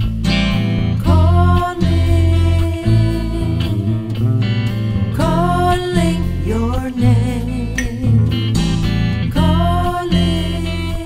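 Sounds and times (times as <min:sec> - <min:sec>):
guitar: 0:00.0 - 0:11.0
person singing: 0:01.0 - 0:08.6, 0:09.3 - 0:11.0.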